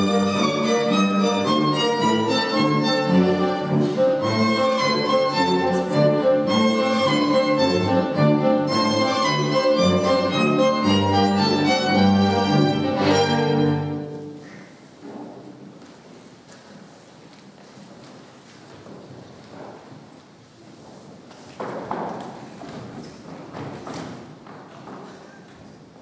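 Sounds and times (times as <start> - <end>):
lower bowed strings: 0.0 - 14.2
violin melody: 0.0 - 14.4.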